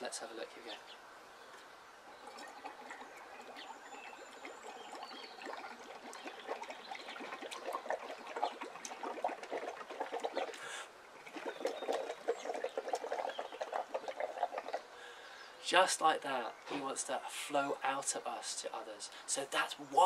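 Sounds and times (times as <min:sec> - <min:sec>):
bubbling through a straw: 0:02.0 - 0:15.0.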